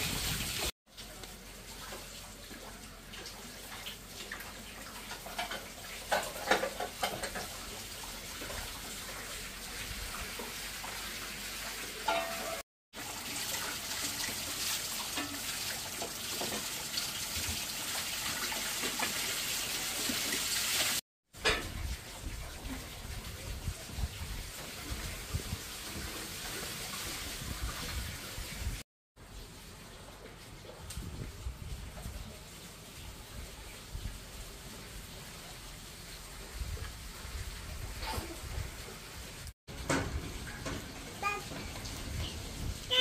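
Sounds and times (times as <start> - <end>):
water running: 0.0 - 43.0
knocks and clatters: 5.1 - 7.6.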